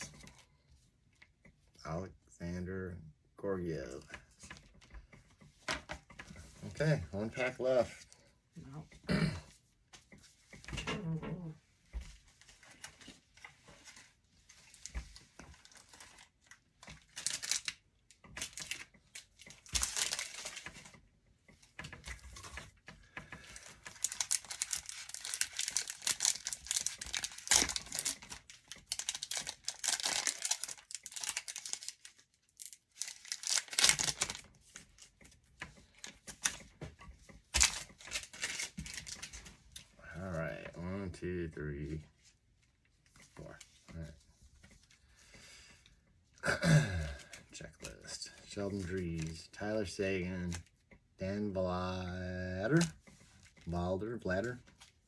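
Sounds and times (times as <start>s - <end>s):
foil wrapper tearing and crinkling: 16.9s - 17.8s, 19.6s - 20.7s, 23.6s - 34.5s.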